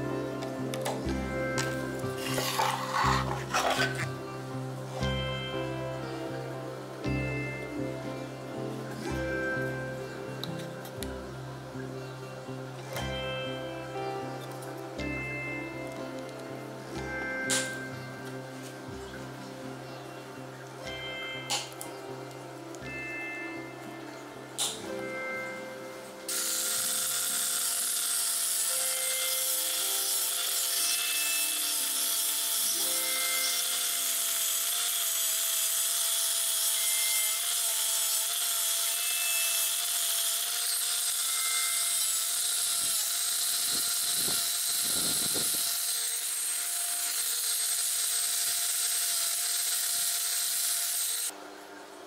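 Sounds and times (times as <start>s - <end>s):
sanding disc motor whine: 1.1s - 5.2s, 26.3s - 51.4s.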